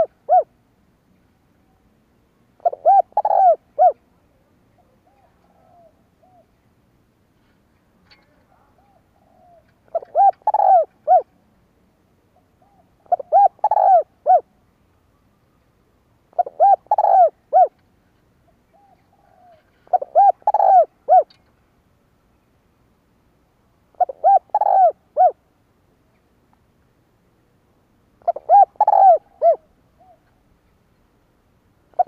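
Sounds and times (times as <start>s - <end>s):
dove cooing: 0.0s - 0.5s, 2.6s - 4.1s, 4.8s - 6.6s, 8.5s - 11.3s, 12.4s - 14.5s, 16.3s - 17.8s, 18.5s - 21.4s, 23.9s - 25.4s, 28.2s - 30.4s.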